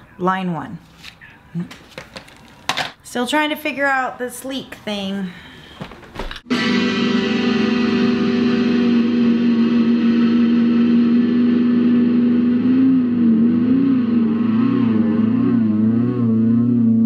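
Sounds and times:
distorted electric guitar note: 6.5 - 17.0.

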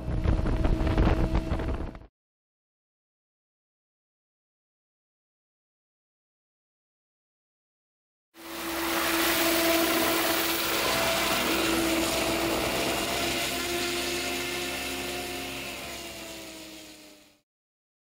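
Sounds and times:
model helicopter motor and rotor: 8.4 - 17.4.

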